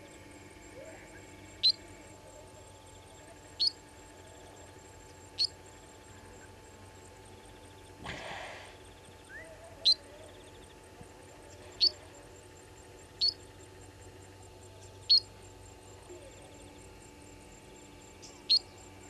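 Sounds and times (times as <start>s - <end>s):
bird chipping: 3.6s - 3.8s.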